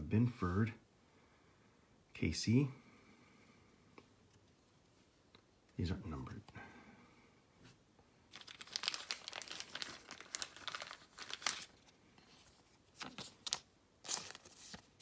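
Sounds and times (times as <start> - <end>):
trading cards rustling: 8.3 - 15.0.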